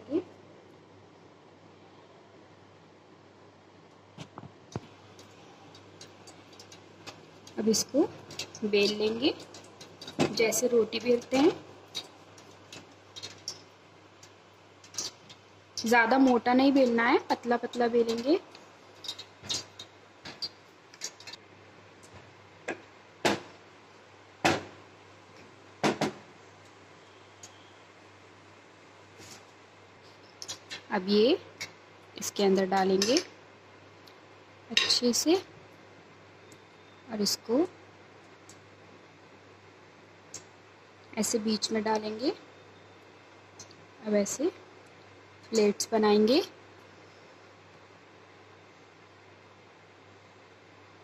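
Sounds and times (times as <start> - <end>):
faint steady hiss: 0.0 - 51.0.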